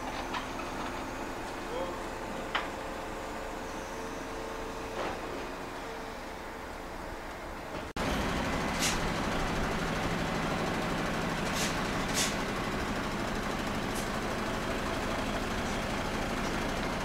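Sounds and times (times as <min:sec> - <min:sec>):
truck engine idling: 0:00.0 - 0:17.0
air hissing: 0:08.7 - 0:09.1, 0:11.4 - 0:12.4.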